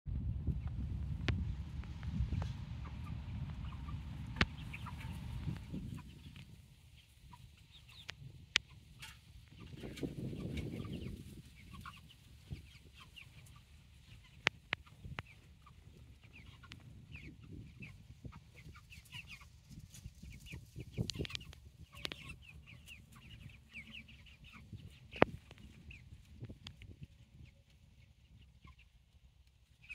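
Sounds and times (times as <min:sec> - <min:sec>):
low rumble: 0:00.1 - 0:07.0
chicks clucking and peeping: 0:00.4 - 0:29.9.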